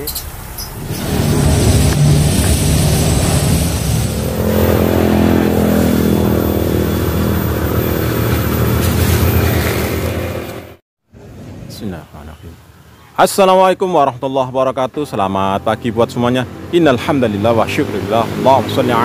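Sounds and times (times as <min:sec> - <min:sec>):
motor engine running: 0:00.8 - 0:10.8.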